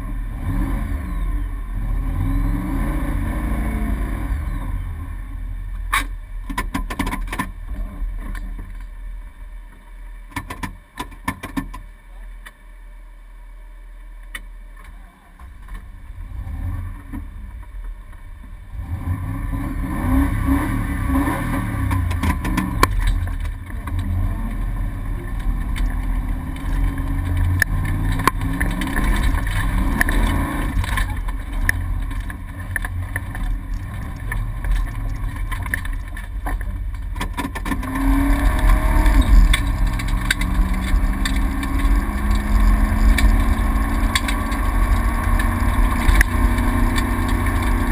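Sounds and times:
rally car engine revving: 0:00.0 - 0:08.8, 0:15.4 - 0:47.9
car knocks and clatters: 0:05.8 - 0:08.9, 0:10.3 - 0:11.9, 0:21.8 - 0:47.9.

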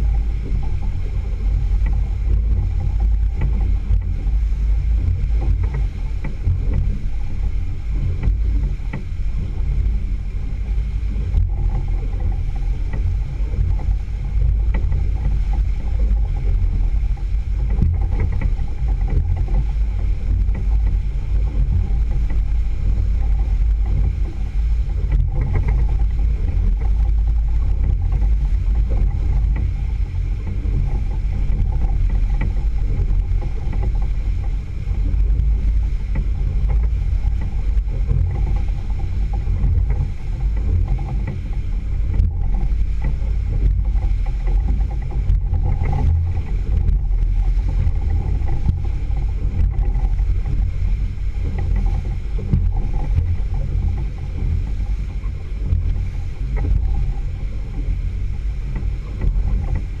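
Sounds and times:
outboard motor running: 0:00.0 - 1:00.0
water rushing along hull: 0:00.0 - 1:00.0.

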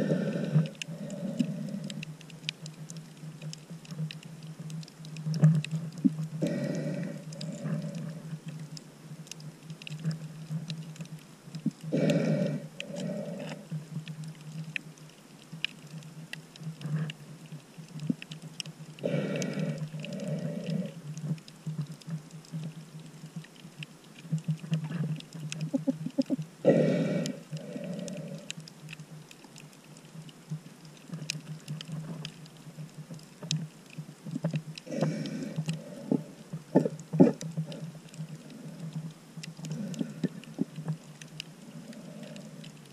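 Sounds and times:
breathing through a snorkel: 0:00.0 - 0:02.1, 0:06.4 - 0:08.3, 0:11.9 - 0:13.8, 0:19.0 - 0:21.0, 0:26.6 - 0:28.6, 0:34.9 - 0:39.0, 0:39.6 - 0:40.7, 0:41.6 - 0:42.7
steady low hum: 0:00.0 - 0:02.5
faint clicks and crackles: 0:00.0 - 0:42.9.

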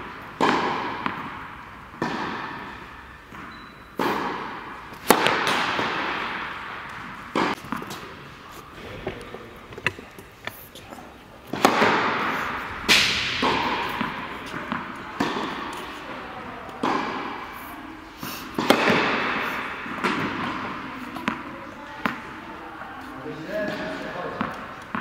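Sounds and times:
tennis ball bouncing on court: 0:00.0 - 0:08.2, 0:11.5 - 0:17.6, 0:18.5 - 0:22.9, 0:23.7 - 0:25.0
racket striking tennis ball: 0:00.0 - 0:10.6, 0:11.5 - 0:17.6, 0:18.4 - 0:22.4.

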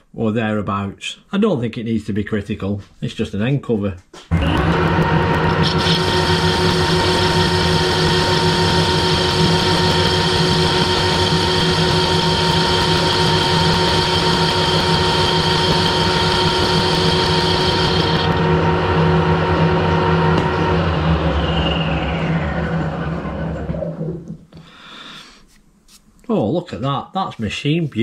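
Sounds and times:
lathe humming and whining: 0:04.3 - 0:24.4.

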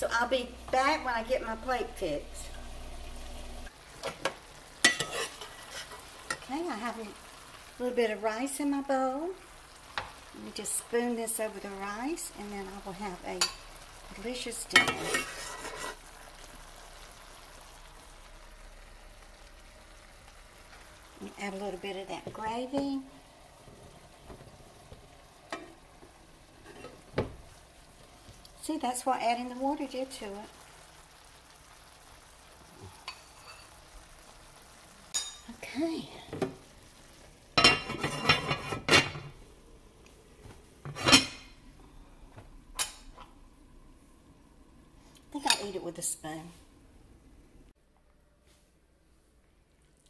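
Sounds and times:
faint pan sizzle: 0:00.0 - 0:47.8
metal spoon scraping in skillet: 0:04.0 - 0:06.5, 0:14.7 - 0:16.1, 0:33.0 - 0:33.8, 0:37.6 - 0:39.3.

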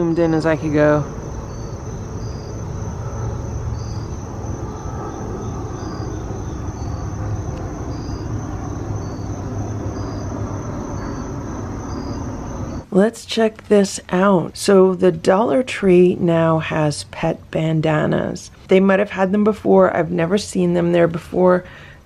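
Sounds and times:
low rumble: 0:00.0 - 0:12.8
insects trilling and chirping: 0:00.0 - 0:22.0.

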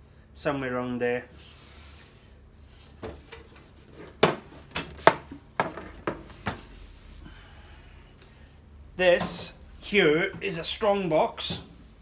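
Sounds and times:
wooden knocks and clunks: 0:04.1 - 0:06.6.

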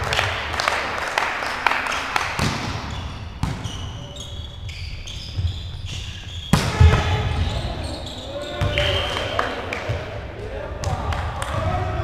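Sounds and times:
volleyball smacks in echoing hall: 0:00.0 - 0:04.0, 0:06.4 - 0:07.8, 0:08.5 - 0:12.0
shoes squeaking on court floor: 0:01.8 - 0:09.5.

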